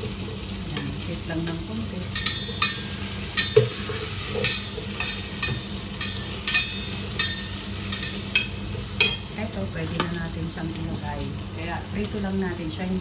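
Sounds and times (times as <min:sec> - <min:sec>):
oil sizzling in a pot: 0:00.0 - 0:13.0
utensil scraping metal pot: 0:02.1 - 0:09.3.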